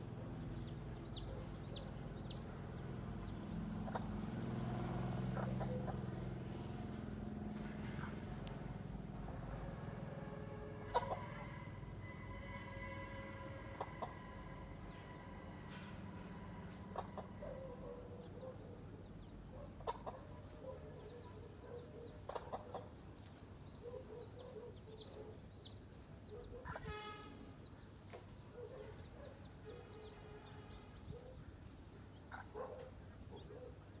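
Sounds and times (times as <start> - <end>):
high chick peeps: 0.6 - 8.7, 10.8 - 11.7, 13.5 - 15.7, 16.3 - 27.0, 31.0 - 33.9
hen clucking low: 10.8 - 11.6.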